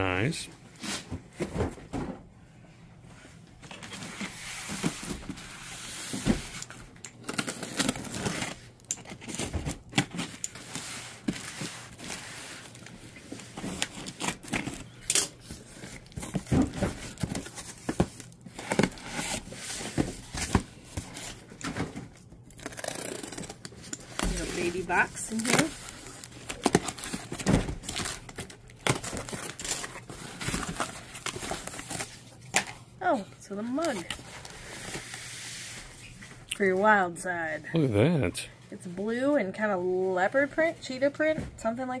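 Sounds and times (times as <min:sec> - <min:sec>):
packing tape tearing: 0:06.5 - 0:21.8, 0:22.5 - 0:32.2.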